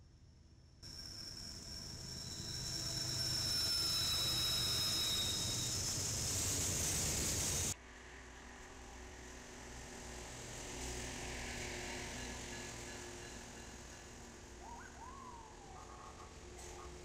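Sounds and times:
high-pitched wheel squeal: 0.9 - 7.8
freight train rumbling past: 1.5 - 15.6.

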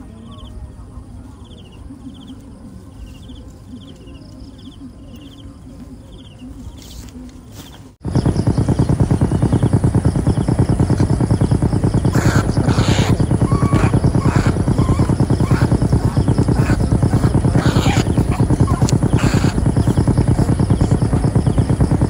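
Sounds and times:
insects chirping trills: 0.0 - 22.0
small engine running: 8.0 - 22.0.

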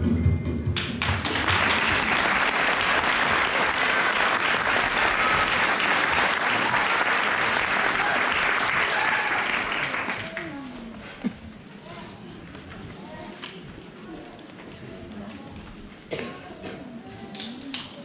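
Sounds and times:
audience applauding: 0.8 - 10.7.

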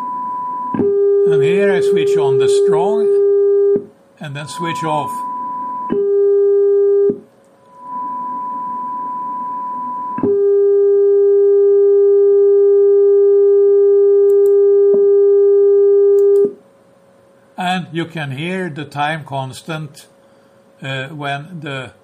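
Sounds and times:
steady high test tone: 0.0 - 10.6
louder low test tone: 0.0 - 16.5.

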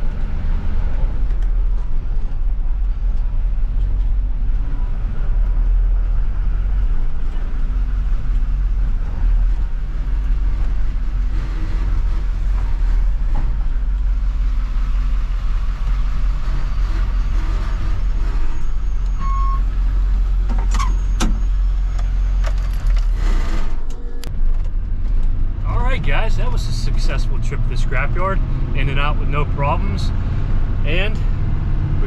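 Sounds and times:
truck engine and road noise: 0.0 - 32.0
brief falling squeak: 18.5 - 19.7, 20.6 - 22.5.

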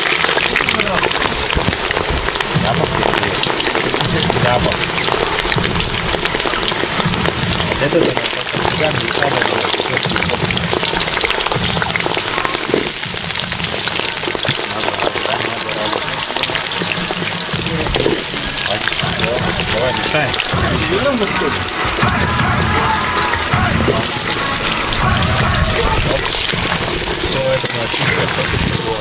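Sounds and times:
potatoes deep-frying in oil: 0.0 - 29.0.

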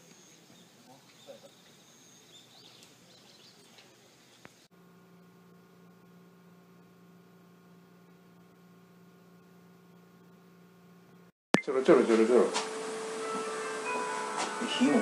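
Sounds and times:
soft bird chirps: 0.0 - 4.6
low electrical hum: 0.0 - 15.0.

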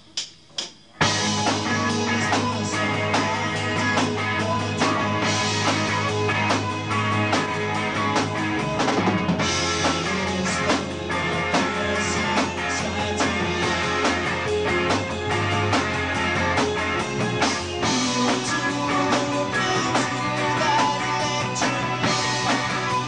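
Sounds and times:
guitar: 0.0 - 23.0
keyboards: 0.0 - 23.0
steady drum beat: 0.0 - 23.0
rock band playing: 0.9 - 23.0.

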